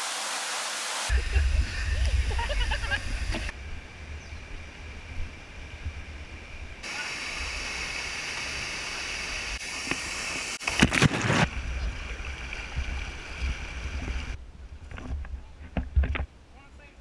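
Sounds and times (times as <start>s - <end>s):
waterfall pouring into pool: 0.0s - 3.5s, 6.8s - 14.4s.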